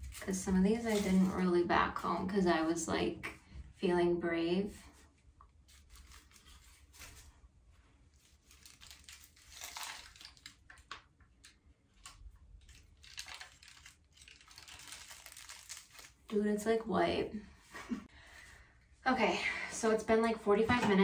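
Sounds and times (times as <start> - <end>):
foil crinkling and rustling: 8.1 - 10.9, 12.6 - 16.4.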